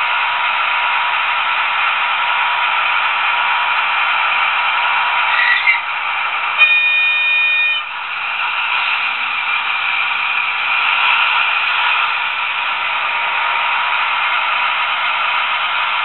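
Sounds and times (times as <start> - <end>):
model locomotive diesel engine sound: 0.0 - 16.0
locomotive horn blast: 6.6 - 8.0.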